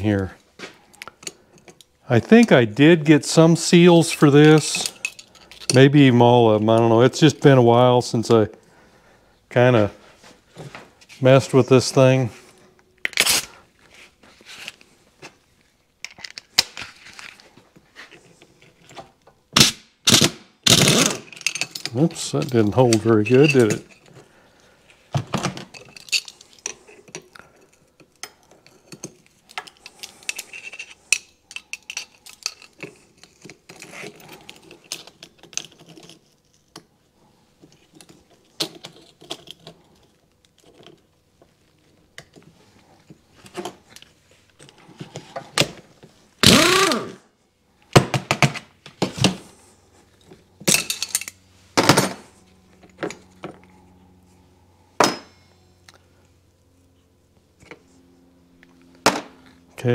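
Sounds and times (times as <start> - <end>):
metal tools clinking on workbench: 4.4 - 6.1, 21.3 - 24.1, 50.7 - 52.2.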